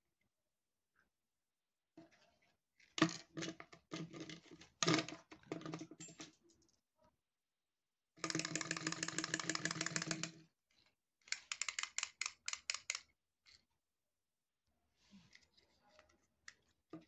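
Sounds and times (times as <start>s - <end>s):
clockwork toy clattering: 8.2s - 10.4s, 11.3s - 13.6s
toy being handled: 8.3s - 13.7s.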